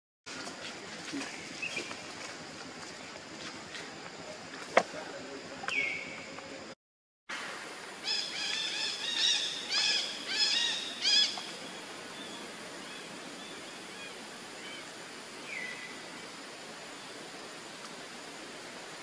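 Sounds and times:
steady hiss: 0:00.3 - 0:19.0
high chirping calls: 0:08.0 - 0:14.9.

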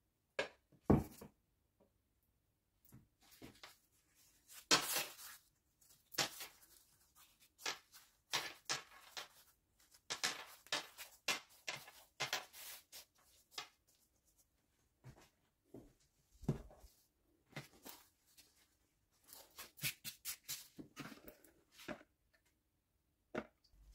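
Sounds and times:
pastry sheets rustling and crinkling: 0:03.2 - 0:15.5.

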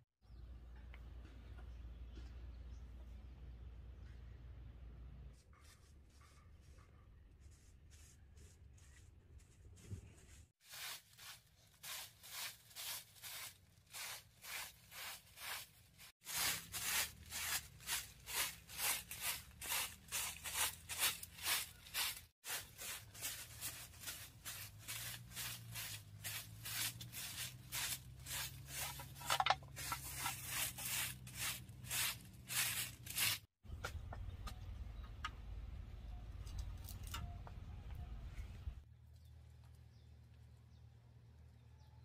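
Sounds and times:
broom sweeping earth floor: 0:05.4 - 0:33.6.

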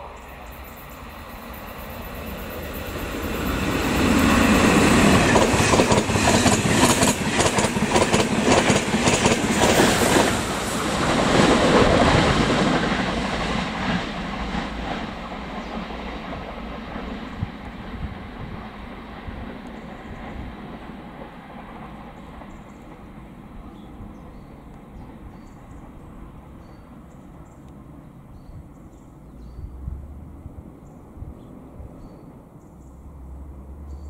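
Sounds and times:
train wheels rumbling: 0:00.0 - 0:28.0.

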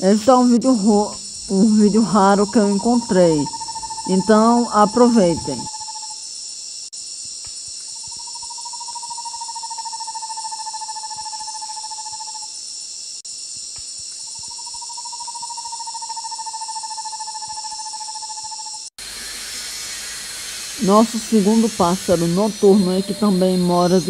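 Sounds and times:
insect chorus: 0:00.0 - 0:24.0
owl trilling: 0:01.0 - 0:06.2.

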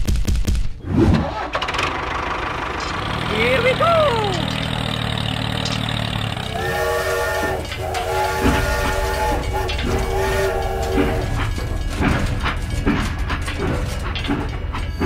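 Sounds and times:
low rumbling: 0:00.8 - 0:15.0
low engine hum: 0:01.4 - 0:15.0
toy steam train whistle: 0:06.3 - 0:12.2.

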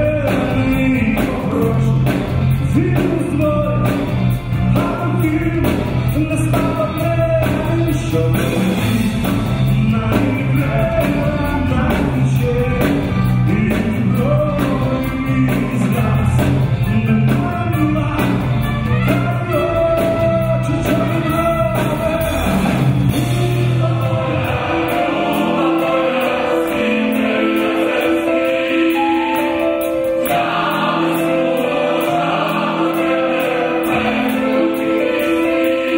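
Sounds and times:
heavy bass line: 0:00.0 - 0:26.0
man singing lead vocal: 0:00.0 - 0:29.2
choir singing: 0:17.8 - 0:35.9.

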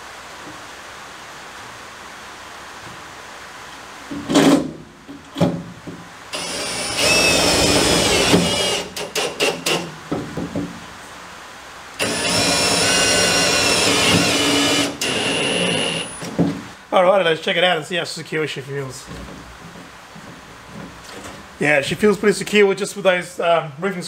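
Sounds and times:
cordless drill driving screws: 0:06.3 - 0:09.9, 0:12.0 - 0:16.3
knocks: 0:10.1 - 0:10.8.

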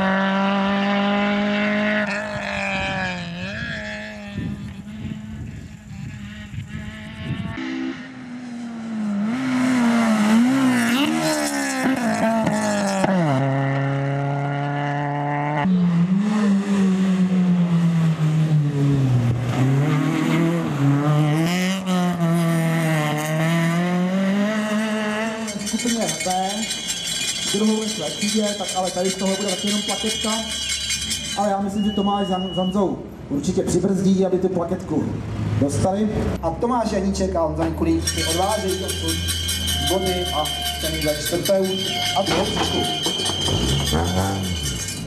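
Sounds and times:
car engine revving hard: 0:00.0 - 0:28.0.

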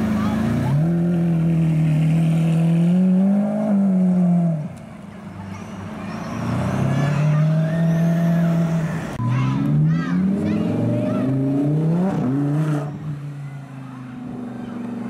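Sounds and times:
sports car engine revving: 0:09.5 - 0:13.2.

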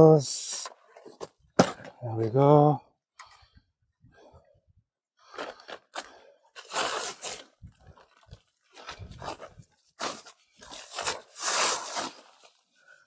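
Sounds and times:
rustling and crunching handling noise: 0:05.3 - 0:13.0.

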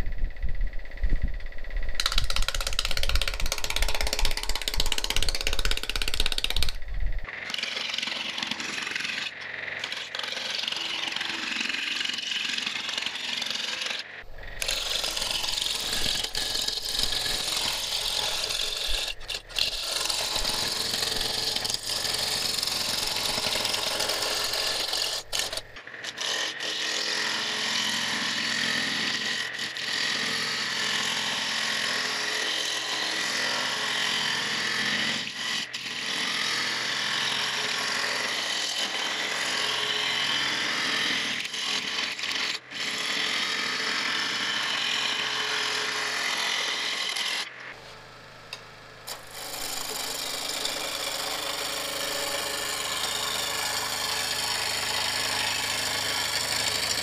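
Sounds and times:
gouge cutting wood on lathe: 0:02.0 - 0:57.0.

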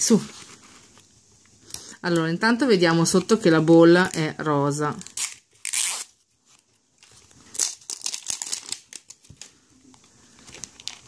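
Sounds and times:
plastic wrapping crinkling and tearing: 0:04.9 - 0:11.0.

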